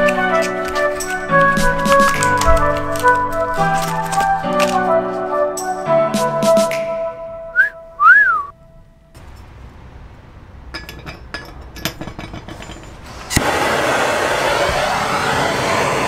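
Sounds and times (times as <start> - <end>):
rising and falling whistle: 7.5 - 8.5, 13.5 - 16.0
metal clinking on ceramic dish: 10.7 - 13.0
gas torch rushing hiss: 13.0 - 16.0
gas torch lighting pop: 13.2 - 16.0.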